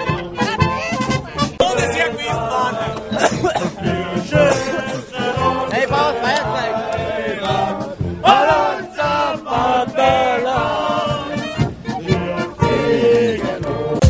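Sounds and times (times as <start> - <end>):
men chanting together: 1.6 - 14.0.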